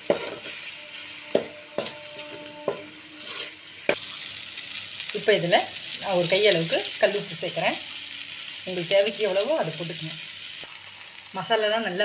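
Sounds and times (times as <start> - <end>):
metal ladle scraping a pan: 0.0 - 4.0
masala sizzling in oil: 0.0 - 12.0.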